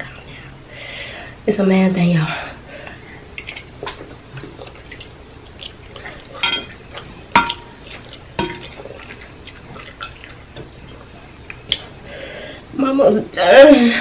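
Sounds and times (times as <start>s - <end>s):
wet noodle sounds: 3.8s - 12.0s
fork clinking on glass dish: 6.4s - 6.8s.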